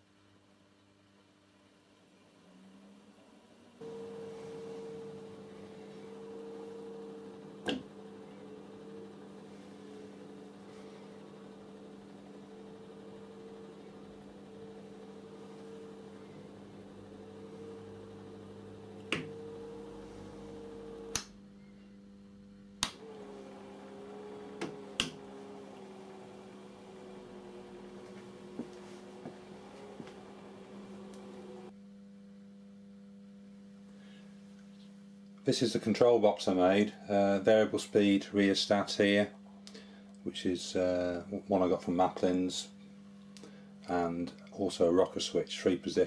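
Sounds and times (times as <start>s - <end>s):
electric motor humming and whining: 3.8s - 21.4s, 22.8s - 31.8s.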